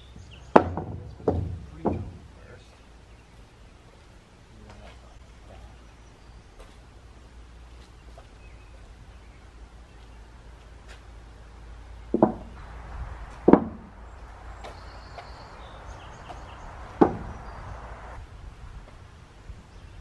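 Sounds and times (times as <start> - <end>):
wooden knocks on concrete: 0.5 - 2.2, 12.1 - 12.6, 13.3 - 13.9, 17.0 - 17.4.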